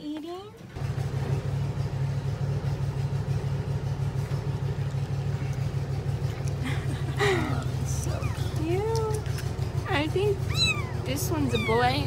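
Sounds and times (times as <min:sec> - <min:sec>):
cat purring: 0:05.9 - 0:12.0.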